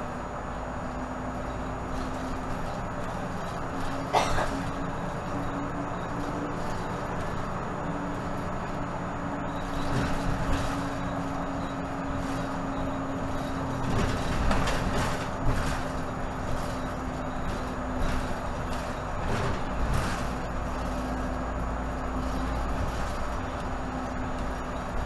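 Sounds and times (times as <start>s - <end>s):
bus engine drone: 0.0s - 25.0s
road rumble: 0.0s - 25.0s
interior rattling and knocks: 9.6s - 21.4s.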